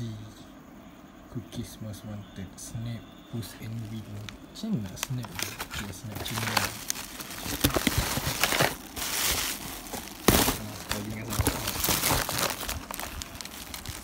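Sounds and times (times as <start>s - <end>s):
plastic packaging crinkling: 3.7s - 14.0s
sharp crackle: 3.8s - 14.0s.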